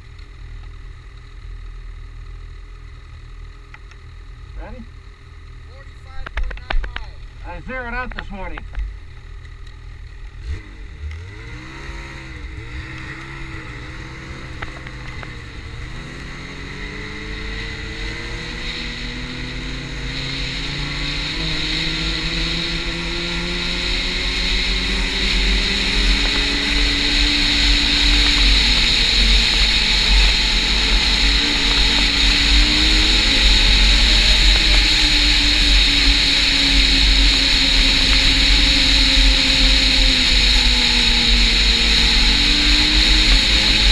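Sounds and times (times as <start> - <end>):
hiss of track and wind: 5.1 - 43.9
snowmobile engine accelerating: 9.5 - 43.9.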